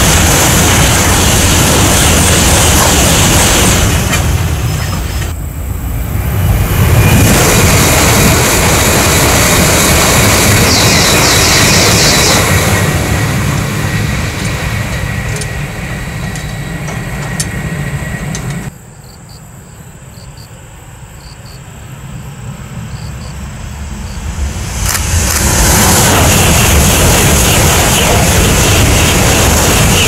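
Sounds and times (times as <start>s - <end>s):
high-speed train passing: 0.0s - 18.9s, 19.9s - 30.0s
train wheel clicks: 7.6s - 18.7s.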